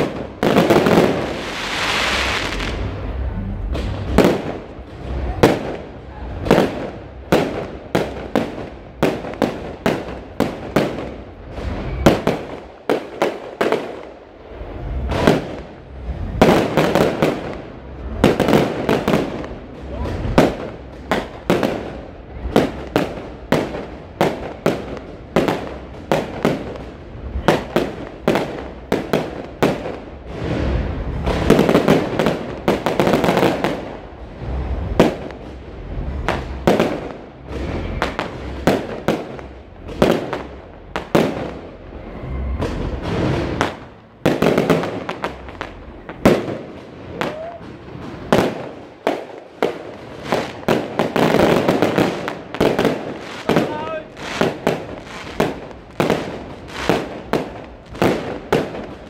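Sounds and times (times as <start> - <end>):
fireworks bangs: 0.0 - 59.0
fireworks crackle: 0.0 - 59.0.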